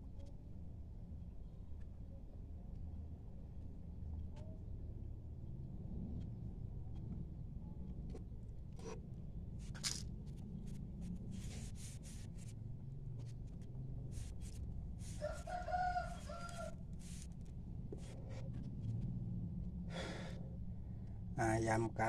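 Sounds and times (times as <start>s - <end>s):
rooster crowing: 15.0s - 16.8s.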